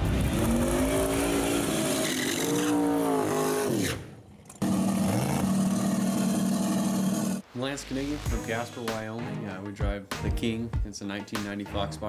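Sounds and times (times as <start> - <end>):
drag car engine revving: 0.0 - 3.8, 4.6 - 7.4
engine holding steady high note: 4.5 - 7.4.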